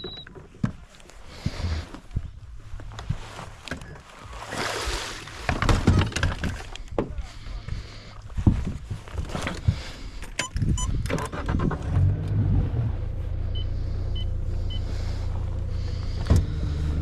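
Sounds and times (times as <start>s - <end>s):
short electronic beeps: 0.0s - 0.3s, 13.5s - 14.8s
outboard engine idling: 13.1s - 17.0s.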